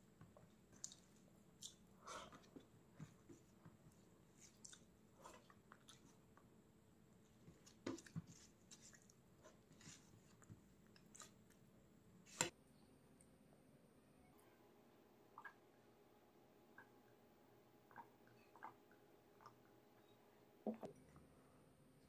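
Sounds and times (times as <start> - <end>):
person chewing food: 0.8 - 3.4, 4.0 - 6.5, 9.9 - 11.7.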